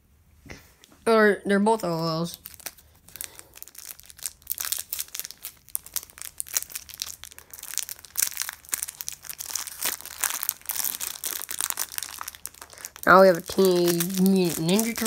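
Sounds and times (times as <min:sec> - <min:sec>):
plastic bag crinkling: 0:02.2 - 0:15.0.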